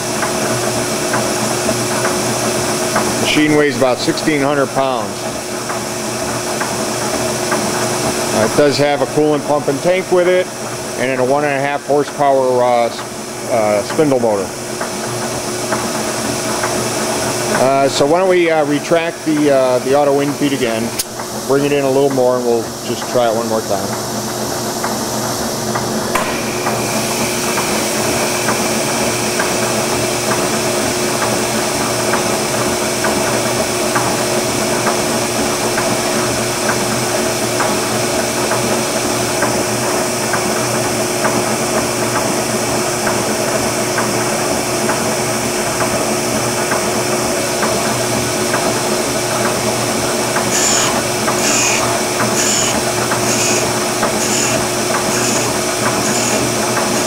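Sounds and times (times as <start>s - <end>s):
grinder motor humming: 0.0s - 11.8s, 15.3s - 36.6s, 46.9s - 57.0s
high pulsing grinding: 25.0s - 35.8s, 47.0s - 57.0s.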